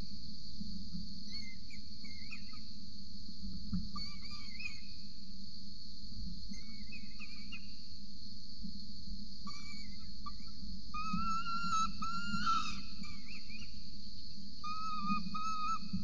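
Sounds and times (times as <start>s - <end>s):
faint squeaky chirping calls: 1.2s - 2.8s, 3.9s - 5.1s, 6.5s - 7.9s, 9.4s - 13.9s, 14.6s - 16.0s
high-pitched insect drone: 9.4s - 13.8s, 14.6s - 16.0s.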